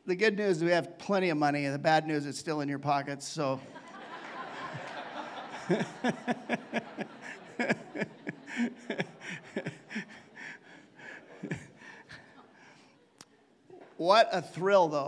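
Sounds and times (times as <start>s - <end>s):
congregation laughing: 3.6s - 14.0s
man laughing in short bursts: 4.9s - 12.4s.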